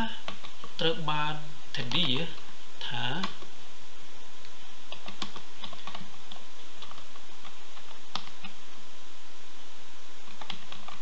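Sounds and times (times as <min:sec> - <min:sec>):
steady background hiss: 0:00.0 - 0:11.0
keyboard keystroke clicks: 0:04.9 - 0:08.6.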